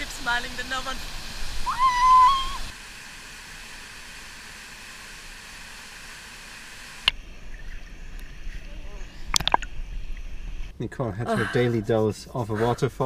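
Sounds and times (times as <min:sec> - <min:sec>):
waterfall rushing into pool: 0:00.0 - 0:07.1
water splashing: 0:06.6 - 0:10.3.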